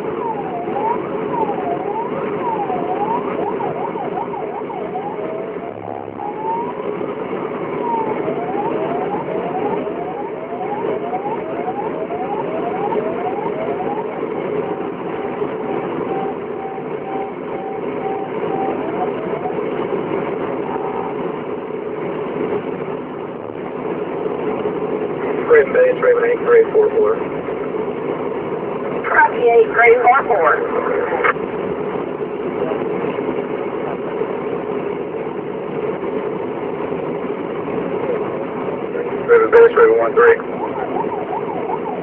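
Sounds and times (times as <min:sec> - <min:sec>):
electronic vehicle siren: 0:00.0 - 0:21.6, 0:29.1 - 0:31.4, 0:39.0 - 0:42.0
engine and road noise: 0:00.0 - 0:42.0.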